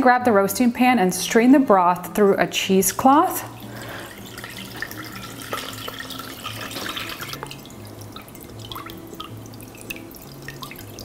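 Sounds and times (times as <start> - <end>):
liquid trickling and dripping: 2.8 - 11.0.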